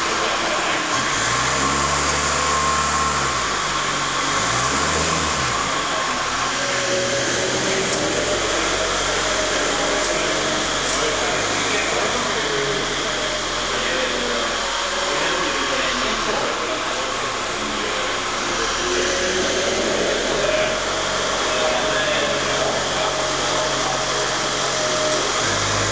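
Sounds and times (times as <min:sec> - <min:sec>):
forklift truck humming: 0:00.0 - 0:25.9.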